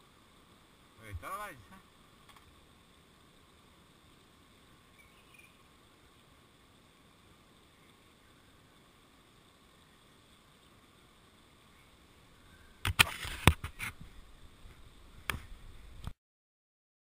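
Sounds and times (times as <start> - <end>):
sharp click: 12.8 - 13.9.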